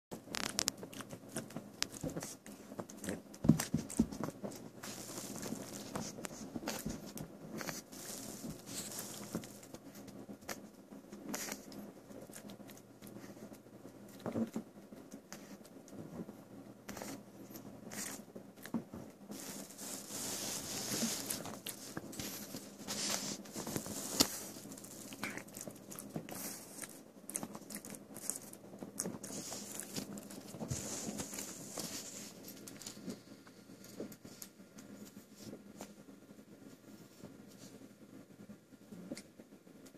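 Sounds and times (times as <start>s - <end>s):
dog chewing: 0.2s - 15.6s, 16.9s - 33.2s.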